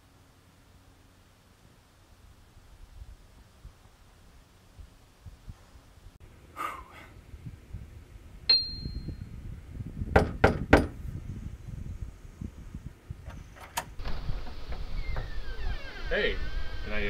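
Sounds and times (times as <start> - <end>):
bright ding: 8.5 - 9.3
knocks on door: 10.1 - 11.0.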